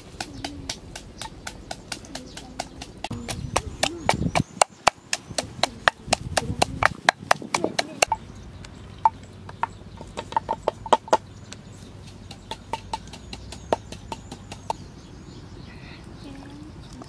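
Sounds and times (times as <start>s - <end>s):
pestle pounding in a mortar: 0.0s - 8.2s, 12.1s - 14.8s.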